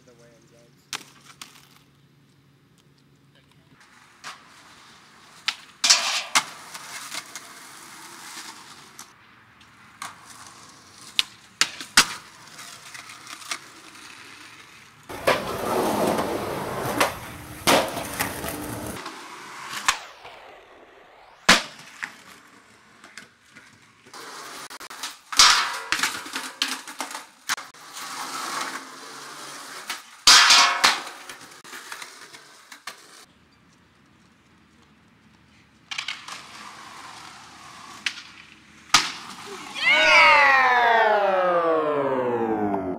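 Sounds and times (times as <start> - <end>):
skateboard wheels rolling on concrete: 0.0 - 42.9
skateboard scraping on metal rail: 3.8 - 9.1, 10.0 - 33.3, 35.9 - 38.5
skateboard popping and slapping down: 4.2 - 9.1, 10.0 - 20.6, 21.3 - 33.1, 35.9 - 39.8.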